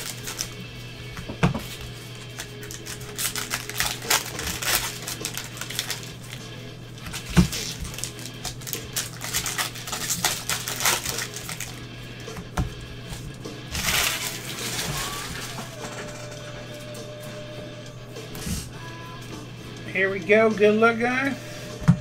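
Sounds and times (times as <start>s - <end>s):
cards clicking and shuffling: 0.0s - 0.6s, 1.2s - 16.1s
foil wrappers crinkling: 0.0s - 0.6s, 1.6s - 11.9s, 13.7s - 16.1s.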